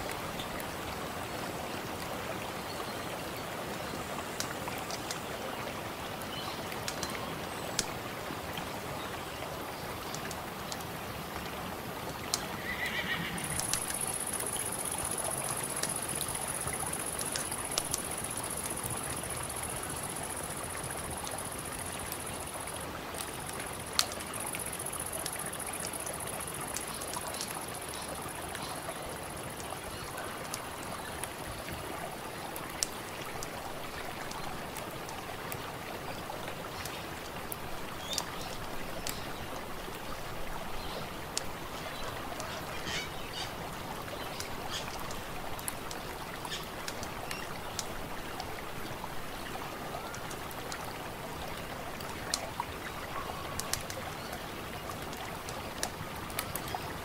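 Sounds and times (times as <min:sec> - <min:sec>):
river water rushing: 0:00.0 - 0:57.0
campfire crackling and popping: 0:12.2 - 0:28.6, 0:32.6 - 0:35.2, 0:44.4 - 0:49.4, 0:53.5 - 0:54.0, 0:54.9 - 0:56.7.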